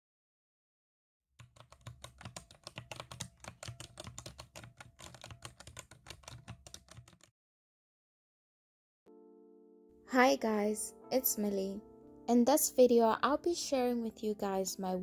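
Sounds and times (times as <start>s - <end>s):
typing on computer keyboard: 1.4s - 7.3s.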